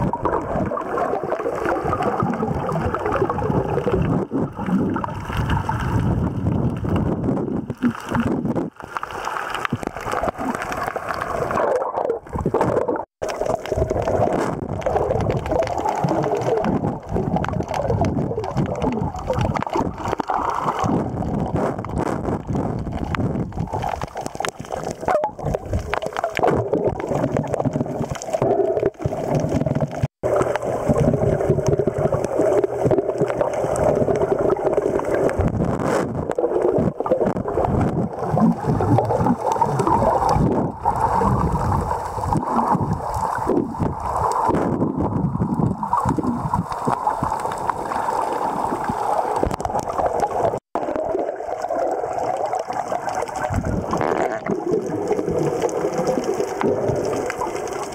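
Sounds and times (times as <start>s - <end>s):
muffled underwater water sloshing: 0.0s - 57.9s.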